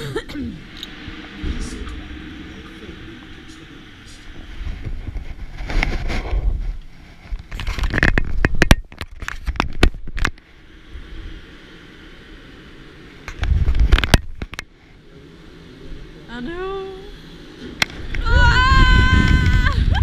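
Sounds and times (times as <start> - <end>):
scraping and crackling: 0.8 - 10.5
sharp clicks and knocks: 7.3 - 10.4.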